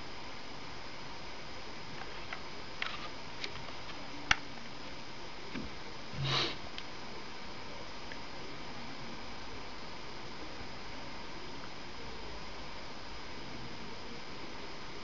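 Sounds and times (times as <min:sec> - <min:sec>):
steady hiss: 0:00.0 - 0:15.0
person sniffing: 0:06.2 - 0:06.6.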